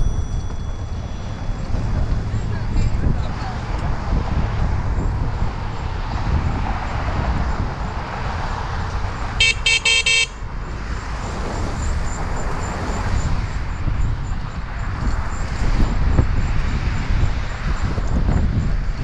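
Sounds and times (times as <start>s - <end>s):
wind on camera: 0.0s - 9.4s, 10.4s - 19.0s
bicycle horn short beeps: 9.4s - 10.4s.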